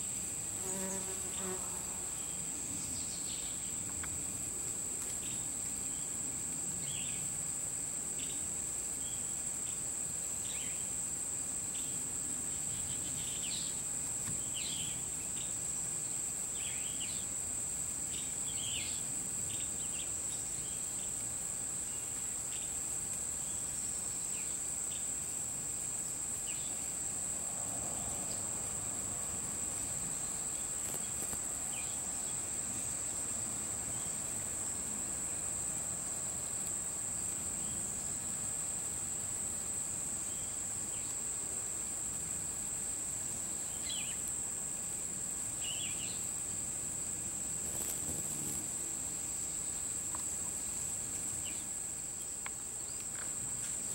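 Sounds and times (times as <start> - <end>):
insect chorus trilling: 0.0 - 53.9
short insect chirps: 29.8 - 33.2, 45.5 - 53.3.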